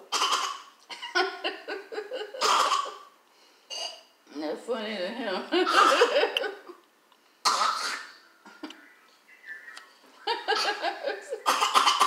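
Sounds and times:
cough-like burst: 0:02.4 - 0:03.0, 0:07.4 - 0:08.2, 0:11.4 - 0:12.0
person laughing: 0:10.2 - 0:11.6.

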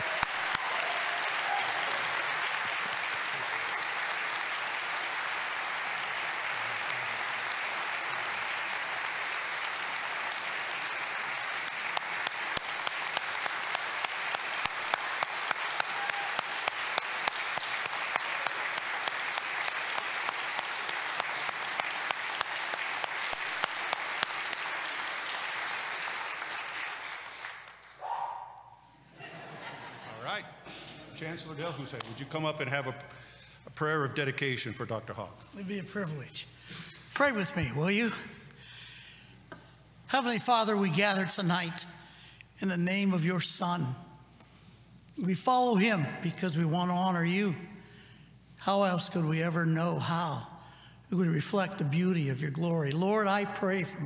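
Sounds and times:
audience applauding: 0:00.0 - 0:28.8.

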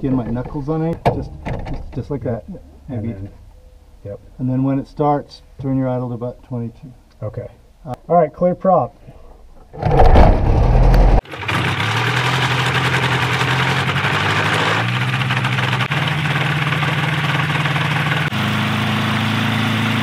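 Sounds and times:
light aircraft engine running: 0:11.3 - 0:20.0.

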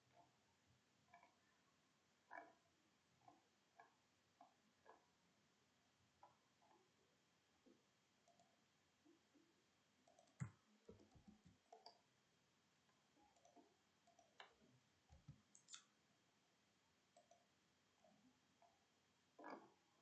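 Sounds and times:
mouse and keyboard clicks: 0:10.0 - 0:12.0, 0:13.3 - 0:15.9.

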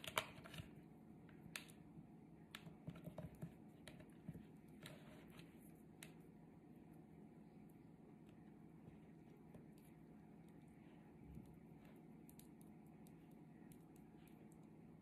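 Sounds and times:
faint small clicks and ticks: 0:11.3 - 0:14.8.

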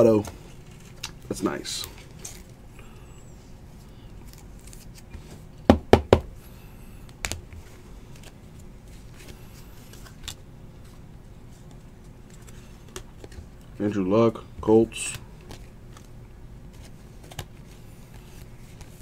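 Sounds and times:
cards clicking and rustling: 0:07.1 - 0:10.4, 0:11.6 - 0:13.8, 0:14.9 - 0:19.0.

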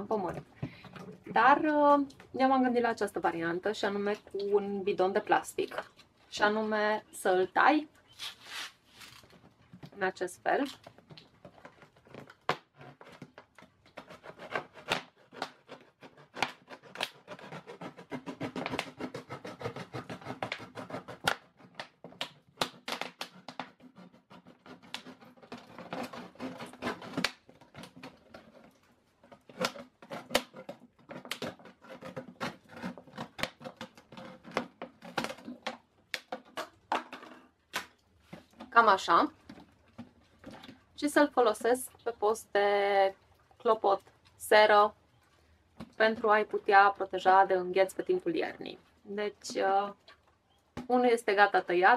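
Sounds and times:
knife cutting plastic jug: 0:10.6 - 0:41.8.

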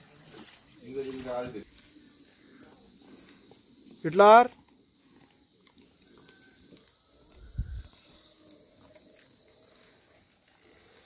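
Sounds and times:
high-pitched insect chorus: 0:00.0 - 0:11.0.

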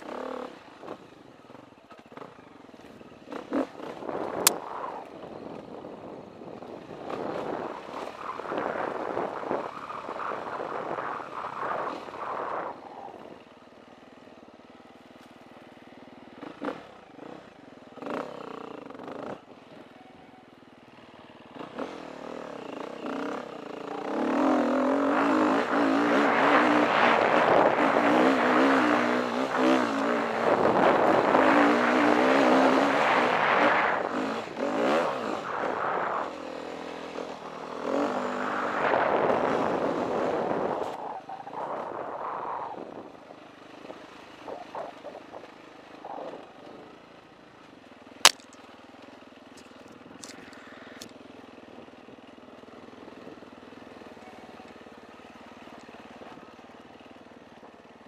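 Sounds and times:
dirt bike engine revving: 0:21.5 - 0:40.9.

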